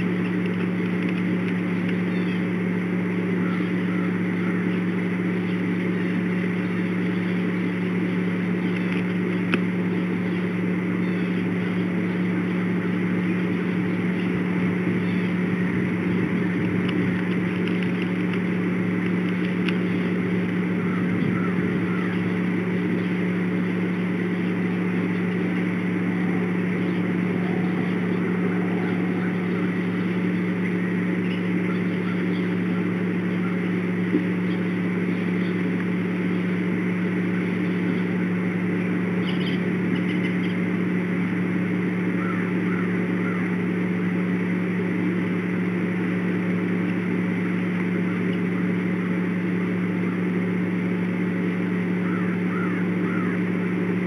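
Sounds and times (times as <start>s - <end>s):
low humming drone: 0.0s - 54.0s
faint bird chirps: 1.7s - 17.2s, 19.3s - 36.6s, 39.1s - 40.7s.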